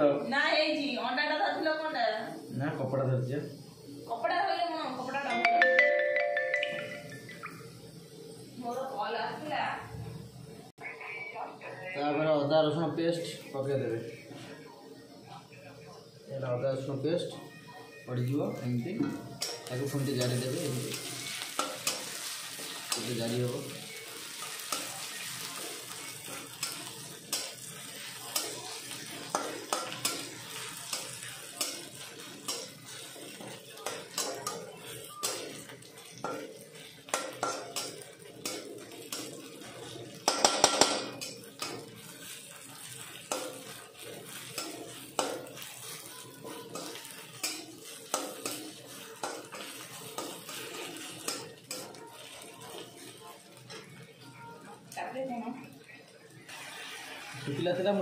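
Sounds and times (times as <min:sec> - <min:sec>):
food sizzling in oil: 0:00.0 - 0:58.0
metal spatula scraping a pan: 0:19.4 - 0:54.0.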